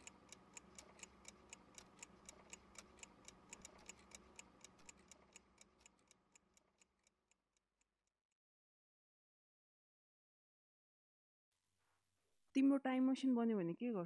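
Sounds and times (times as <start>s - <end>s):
clock ticking: 0.0s - 7.2s.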